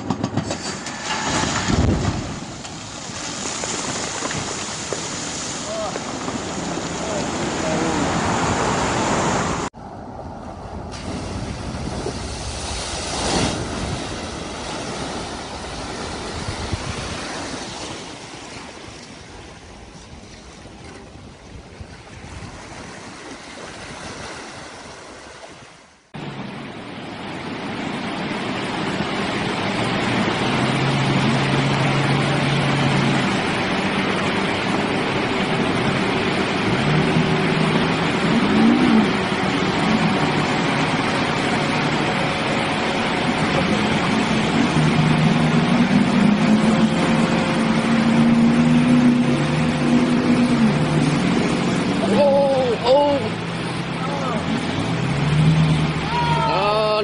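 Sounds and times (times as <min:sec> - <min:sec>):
wind noise: 0:00.0 - 0:25.4
engine running steadily: 0:00.0 - 0:25.5, 0:26.2 - 0:57.0
water rushing and splashing: 0:00.0 - 0:57.0.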